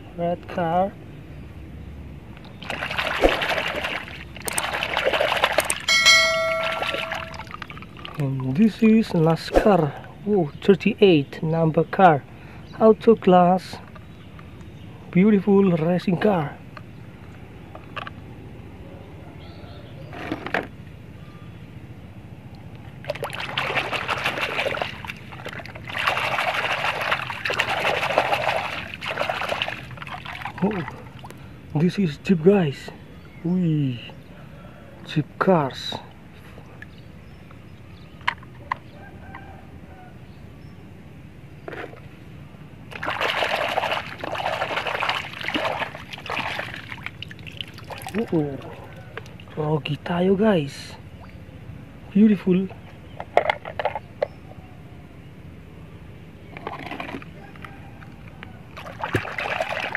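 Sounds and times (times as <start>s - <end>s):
water pouring and splashing: 2.5s - 5.9s, 6.5s - 8.6s, 23.0s - 31.3s, 42.9s - 49.4s, 58.8s - 59.9s.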